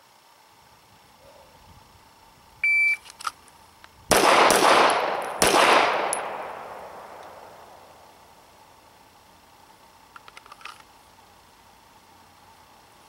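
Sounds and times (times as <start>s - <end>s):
shot timer beep: 2.6s - 3.0s
pistol shots echoing: 4.1s - 8.1s.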